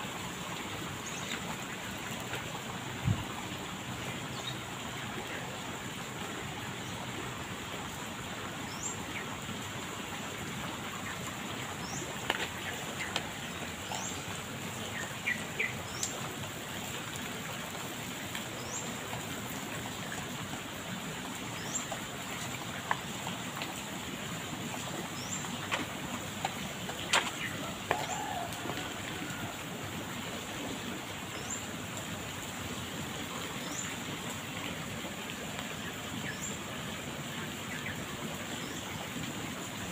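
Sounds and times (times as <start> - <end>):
steady rain hiss: 0.0 - 39.9
sharp drips: 8.7 - 36.9.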